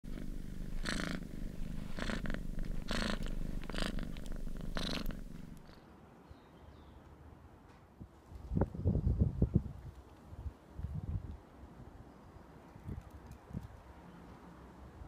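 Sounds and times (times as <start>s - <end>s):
cat purring: 0.0s - 5.9s.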